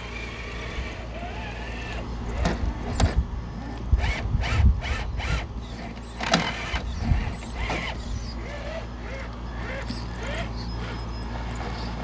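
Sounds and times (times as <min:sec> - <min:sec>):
toy truck tires grinding on rock: 0:00.0 - 0:12.0.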